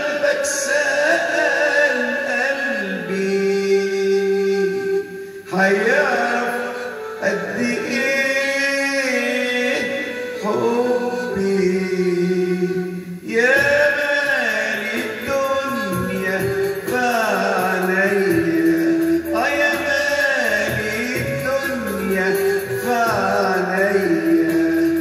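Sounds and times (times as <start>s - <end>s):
man singing into a microphone: 0.0s - 25.0s
electronic keyboard melody: 12.6s - 25.0s.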